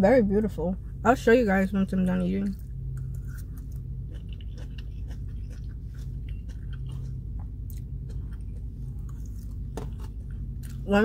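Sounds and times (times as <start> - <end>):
low hum: 0.0 - 11.0
person chewing food: 2.4 - 10.9.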